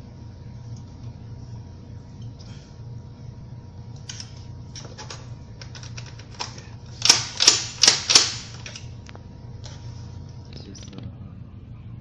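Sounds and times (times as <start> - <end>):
lock parts clicking and clacking: 4.1 - 8.9.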